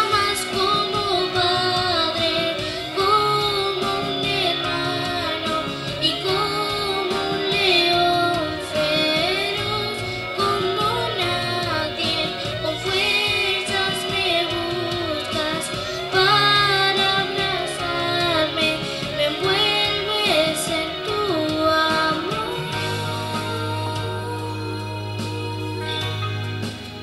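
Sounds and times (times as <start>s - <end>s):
girl singing into microphone: 0.0s - 26.8s
backing track: 0.0s - 27.0s.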